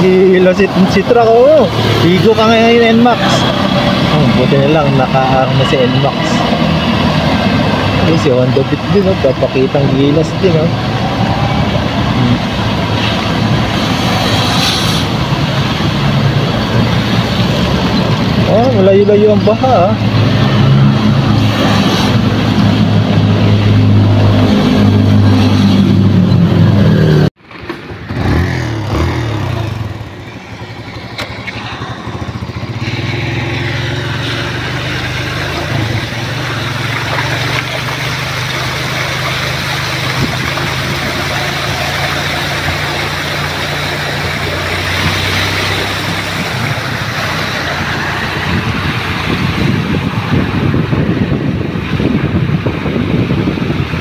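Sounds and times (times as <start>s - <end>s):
water splashing: 0.0s - 26.1s, 28.8s - 50.7s
motorcycle engine running loudly: 0.0s - 54.0s
wind rushing on microphone: 39.2s - 54.0s.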